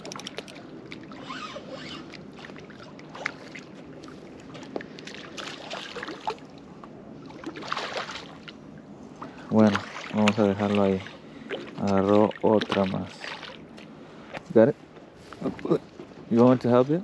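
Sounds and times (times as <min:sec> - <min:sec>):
water sloshing: 0:00.0 - 0:17.0.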